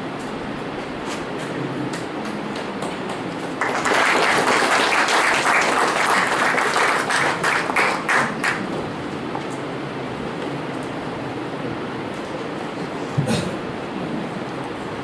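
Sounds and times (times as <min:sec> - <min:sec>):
audience applauding: 0:01.9 - 0:09.0.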